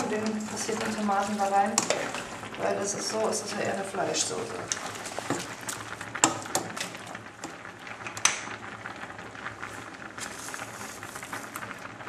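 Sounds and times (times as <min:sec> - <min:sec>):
sauce hissing in pot: 0:09.6 - 0:12.0.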